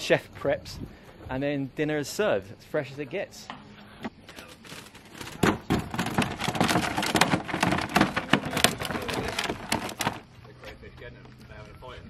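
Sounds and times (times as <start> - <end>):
knocks: 5.4 - 10.2.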